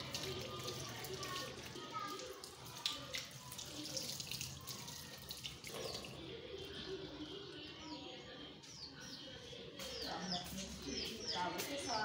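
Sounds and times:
water splashing over hands: 0.0s - 6.2s
tap water running into basin: 0.0s - 6.4s.

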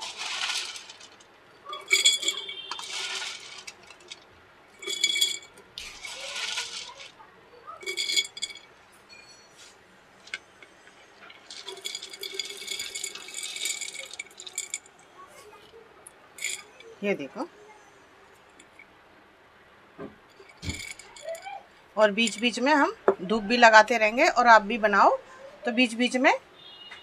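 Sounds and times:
dry pieces rattling into jar: 0.0s - 7.2s, 7.8s - 8.7s, 10.2s - 14.9s, 16.4s - 16.6s, 20.4s - 21.4s, 22.2s - 22.6s.

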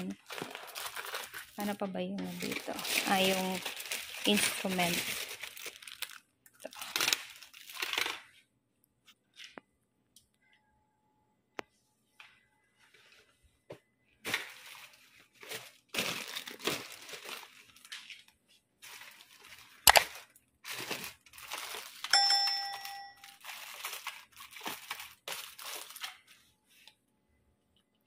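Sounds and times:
plastic packaging crinkling: 0.0s - 8.3s, 14.3s - 26.8s
short ringing tone: 22.1s - 23.4s.

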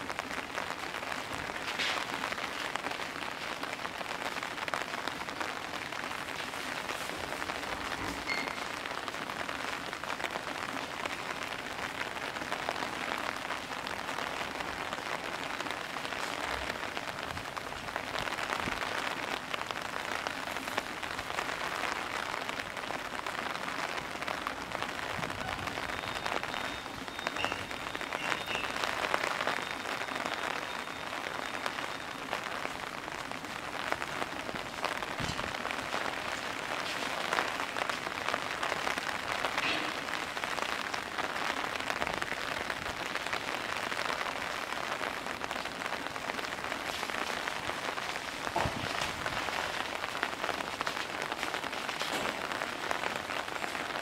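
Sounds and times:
heavy rain pattering: 0.0s - 54.0s.

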